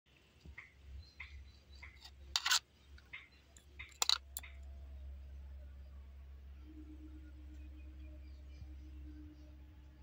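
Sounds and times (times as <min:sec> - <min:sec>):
low hum: 0:00.2 - 0:10.0
metal spoon clicking against cups: 0:03.6 - 0:04.5.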